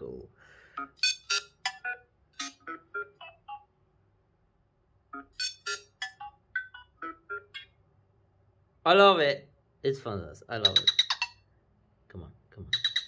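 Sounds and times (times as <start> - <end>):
phone ringtone synth notes: 0.8 - 3.7, 5.1 - 7.8, 10.6 - 11.4, 12.7 - 13.0.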